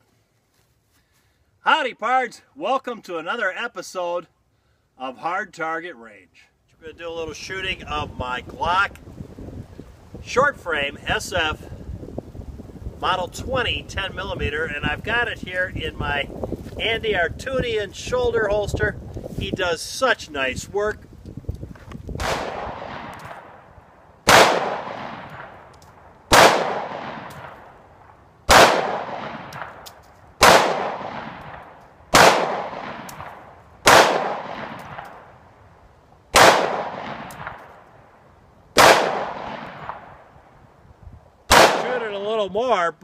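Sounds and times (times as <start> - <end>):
pistol shots: 22.2 - 23.6, 24.2 - 25.7, 26.3 - 27.6, 28.5 - 35.3, 36.3 - 37.7, 38.8 - 40.1, 41.5 - 42.0.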